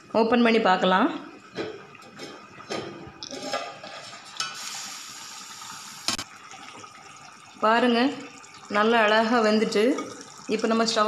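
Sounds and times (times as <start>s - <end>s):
curry simmering hiss: 4.0s - 11.0s.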